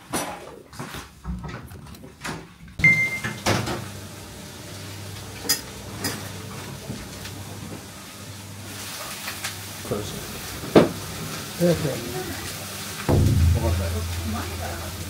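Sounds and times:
low steady hum: 13.1s - 15.0s.

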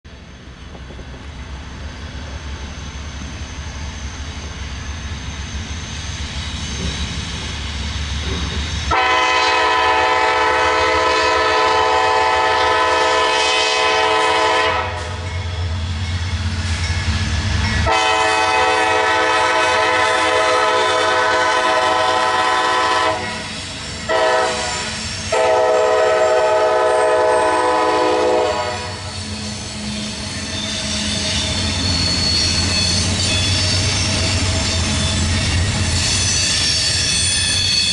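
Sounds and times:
diesel locomotives rumbling: 0.1s - 37.9s
locomotive air horn blasts: 8.9s - 15.2s, 17.8s - 23.4s, 24.1s - 29.1s.

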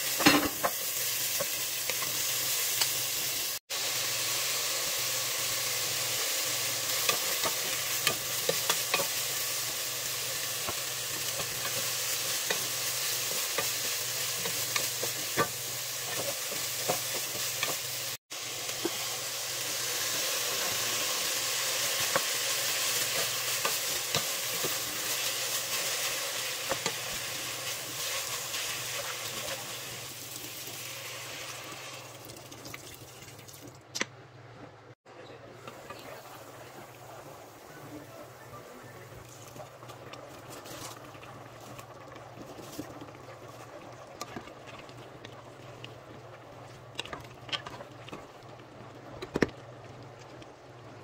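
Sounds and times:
food sizzling in oil: 0.0s - 33.6s
utensil stirring soup in a pot: 39.3s - 50.8s.

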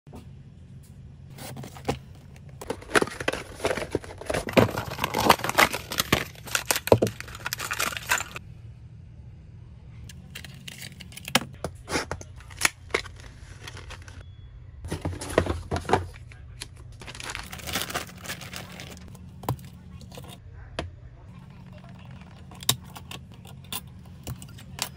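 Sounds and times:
faint low hum: 0.1s - 24.9s
plastic packaging crinkling: 2.6s - 8.4s, 12.4s - 14.2s, 16.7s - 19.6s.

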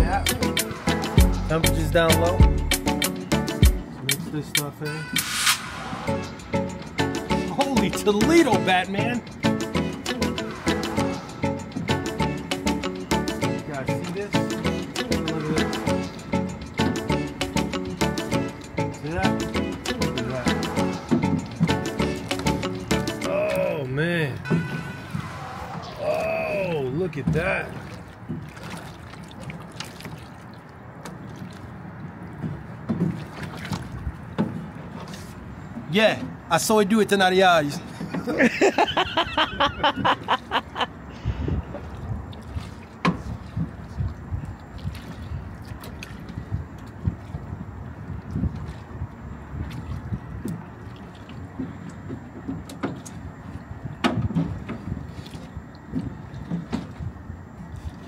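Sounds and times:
water sloshing and gurgling: 0.0s - 4.4s, 5.0s - 36.5s, 37.5s - 58.0s.

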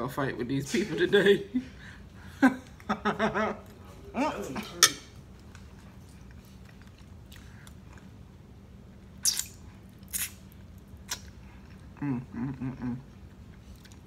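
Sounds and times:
lip smacks while eating: 9.0s - 12.0s, 13.2s - 14.0s
person humming mm-mm: 12.0s - 13.2s.

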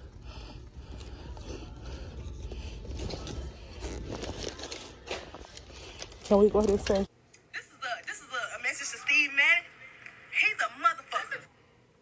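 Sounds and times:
handbags rustling: 0.7s - 7.1s.

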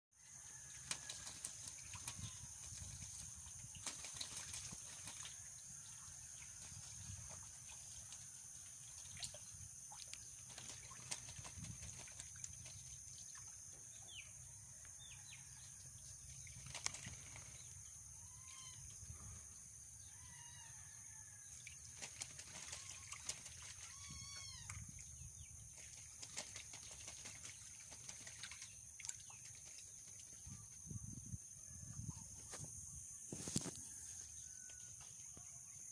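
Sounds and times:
wings flapping in water: 0.2s - 13.6s, 16.3s - 17.8s, 21.4s - 30.6s
ducks splashing in water: 0.5s - 14.1s, 16.2s - 17.8s, 20.4s - 30.5s.

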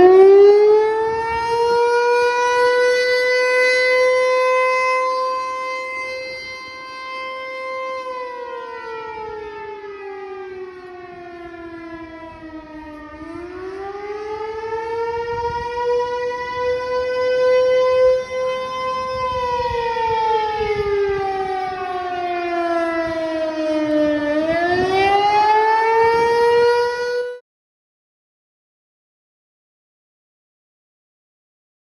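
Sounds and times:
warning siren wailing: 0.0s - 27.4s.

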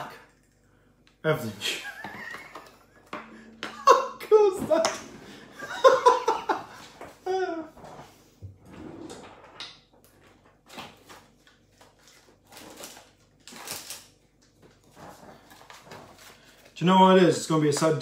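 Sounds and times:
person rummaging through things: 9.0s - 16.8s.

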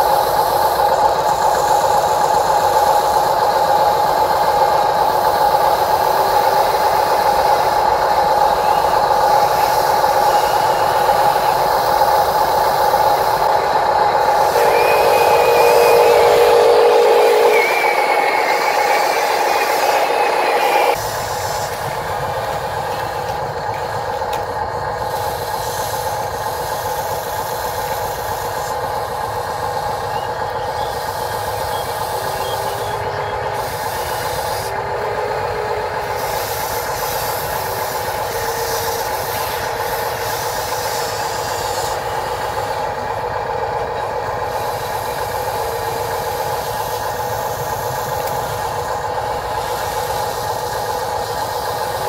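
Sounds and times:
toy machine whine: 0.0s - 21.7s.

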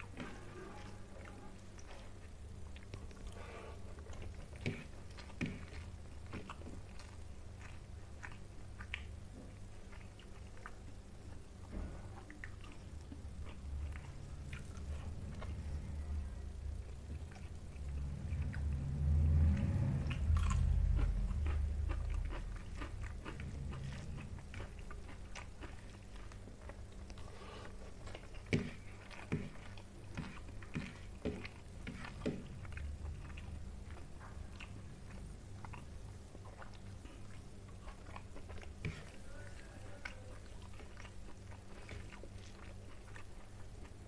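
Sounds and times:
close chewing with wet mouth clicks: 1.2s - 15.8s, 16.8s - 44.0s.

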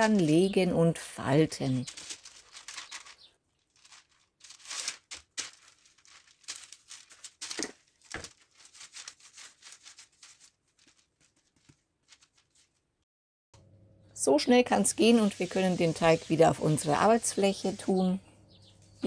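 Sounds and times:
baking paper crinkling: 0.0s - 12.9s, 14.7s - 18.0s.

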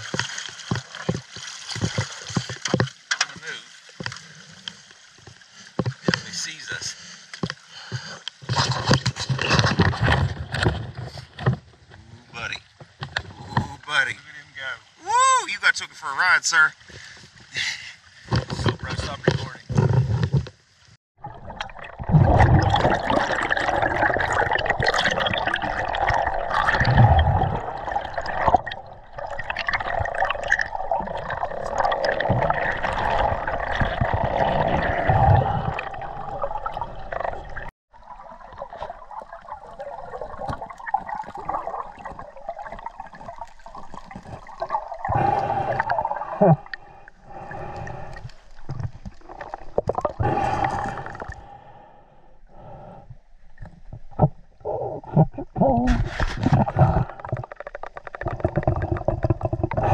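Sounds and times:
dull underwater knocks: 0.0s - 4.2s, 55.2s - 59.9s
water gurgling underwater: 21.2s - 51.5s, 53.6s - 59.9s.

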